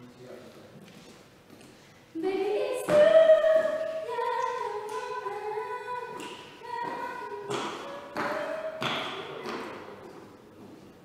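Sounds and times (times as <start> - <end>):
unaccompanied voices singing: 2.2 - 10.0.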